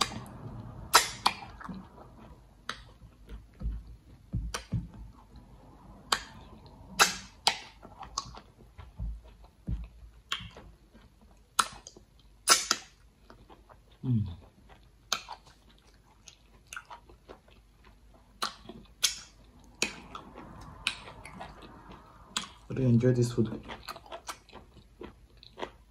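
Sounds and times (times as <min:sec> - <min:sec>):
wet chewing mouth sounds: 0:00.0 - 0:25.9
person humming mm: 0:14.0 - 0:14.4.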